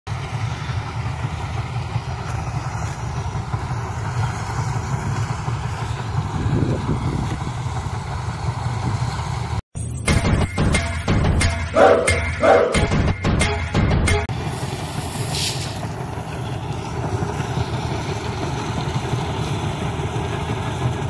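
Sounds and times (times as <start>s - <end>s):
combine harvester engine rumble: 0.1s - 9.6s, 14.3s - 21.0s.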